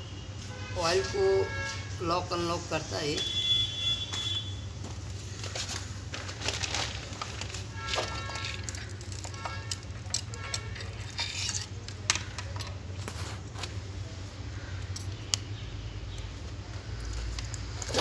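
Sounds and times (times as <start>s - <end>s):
metal parts clinking: 6.4s - 13.1s.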